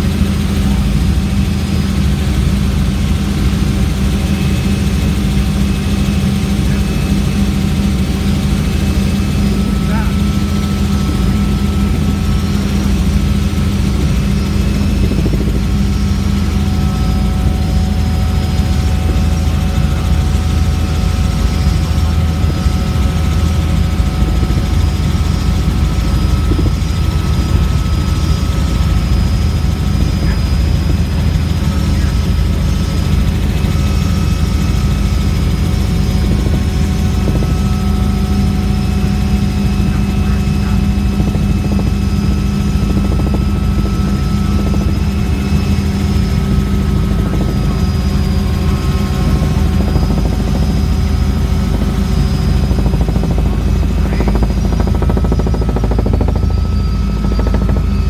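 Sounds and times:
helicopter engine and rotor drone: 0.0s - 58.0s.

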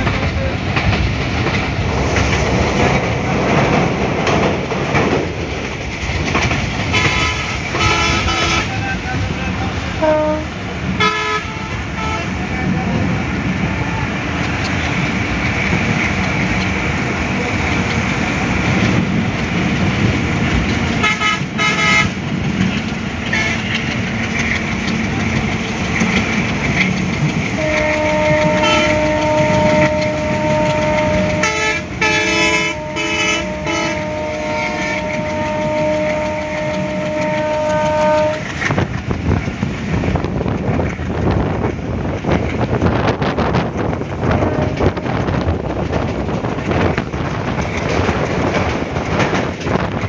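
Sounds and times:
train running noise: 0.0s - 50.0s
vehicle horns honking: 6.9s - 8.9s, 10.0s - 12.3s, 21.0s - 22.2s, 27.6s - 38.5s
long steady horn: 6.9s - 12.8s, 21.0s - 22.2s, 23.3s - 23.9s, 27.6s - 38.8s, 44.3s - 45.5s.

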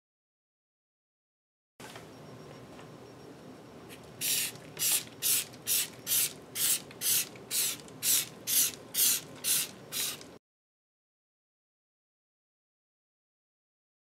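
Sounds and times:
trigger spray bottle spraying: 4.2s - 10.3s.

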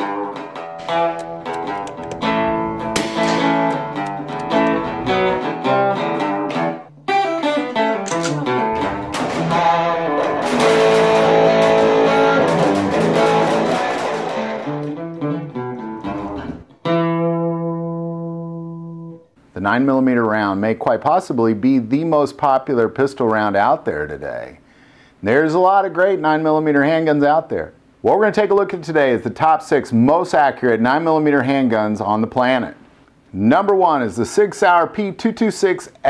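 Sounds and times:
acoustic guitar music: 0.0s - 19.4s.

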